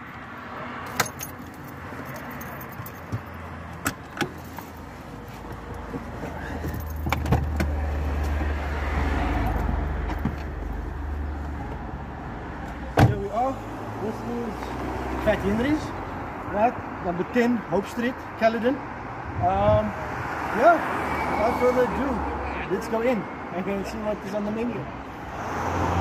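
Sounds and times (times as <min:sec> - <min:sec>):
keys jangling: 0:00.9 - 0:03.4.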